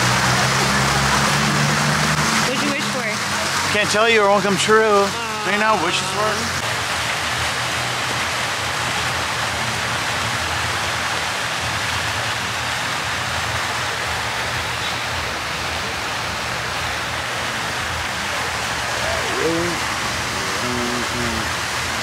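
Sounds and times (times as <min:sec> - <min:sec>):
fountain splashing into basin: 0:00.0 - 0:22.0.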